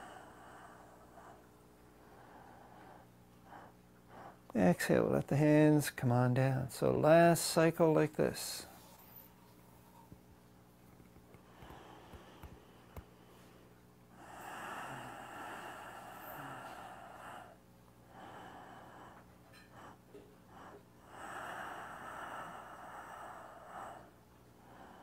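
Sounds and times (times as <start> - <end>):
man breathing slowly and deeply: 0.0 - 4.5, 11.4 - 25.0.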